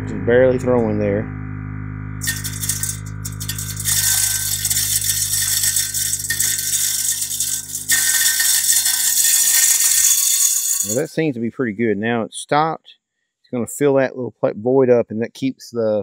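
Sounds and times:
spreader motor hum: 2.2 - 11.0
granules rattling: 2.2 - 11.1.

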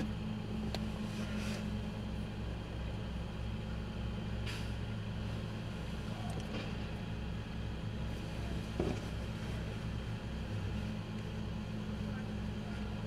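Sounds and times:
garbage truck diesel engine running: 0.0 - 13.0.

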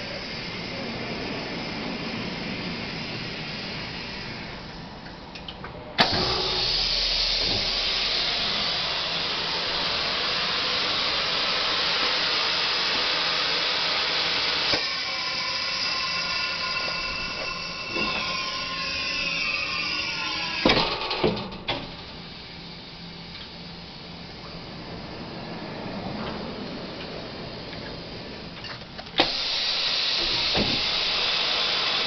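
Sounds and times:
loud steady hiss: 0.0 - 5.4, 6.0 - 32.0
machine whir with falling tones: 6.0 - 11.9, 14.2 - 21.2.

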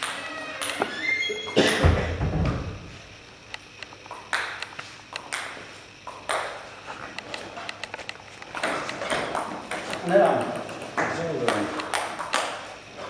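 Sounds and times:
table tennis ball clicking: 7.2 - 12.6.

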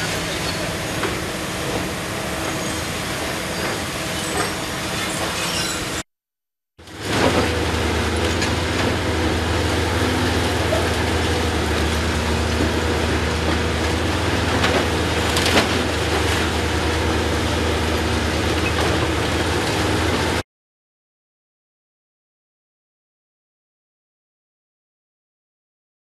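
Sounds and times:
excavator diesel engines droning: 0.0 - 6.0, 6.8 - 20.4.

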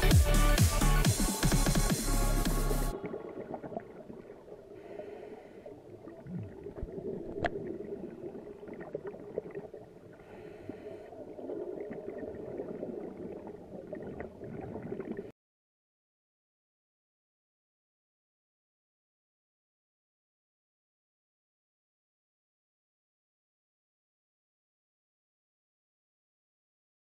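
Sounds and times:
low underwater rumble: 2.4 - 15.3
diver regulator bubbling: 2.6 - 15.3.

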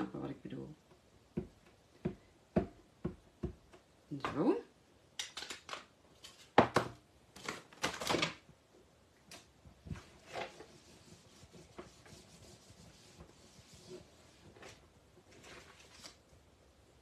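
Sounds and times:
tissue rubbing on plastic mat: 9.9 - 16.2
paper rustling: 14.2 - 16.3.

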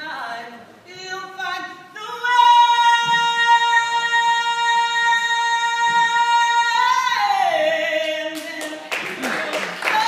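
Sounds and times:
woman singing a long high note: 0.0 - 8.9.

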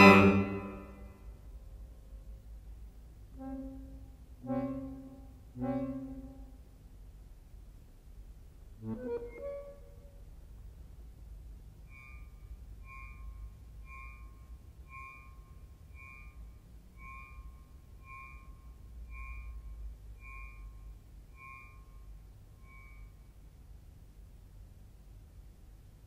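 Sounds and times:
accordion high note: 0.0 - 1.2, 3.4 - 6.6
faint low rumble: 0.0 - 26.0.

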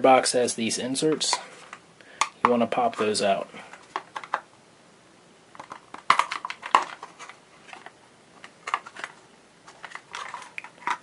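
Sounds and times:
plastic clicks and knocks: 3.9 - 4.4.

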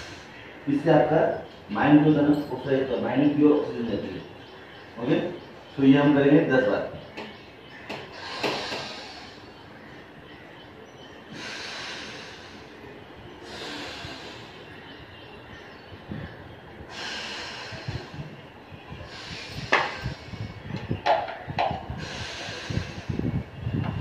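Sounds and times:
deep breathing through the nose: 0.0 - 0.6, 8.0 - 9.8, 11.2 - 15.3, 16.7 - 21.0, 21.8 - 24.0.

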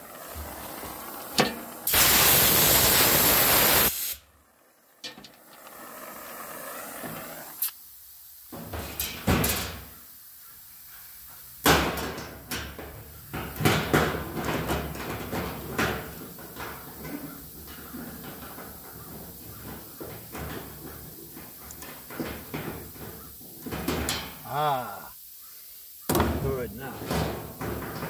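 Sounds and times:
welding torch hissing: 0.0 - 4.4, 5.0 - 28.0
metal tools clanking and rattling: 8.7 - 9.8
sharp knocks on metal: 26.1 - 28.0.

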